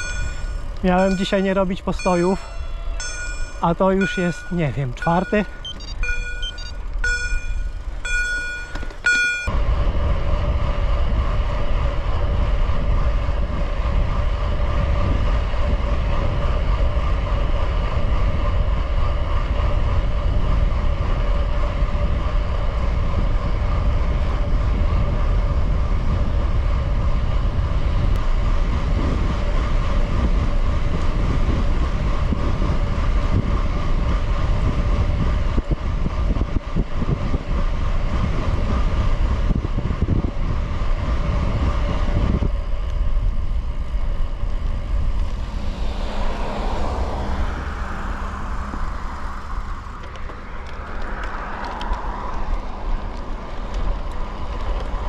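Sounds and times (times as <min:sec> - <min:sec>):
short electronic beeps: 0:00.0 - 0:09.5
bike tyre hum: 0:00.0 - 0:55.0
low rumble: 0:00.0 - 0:55.0
wind buffeting microphone: 0:00.0 - 0:55.0.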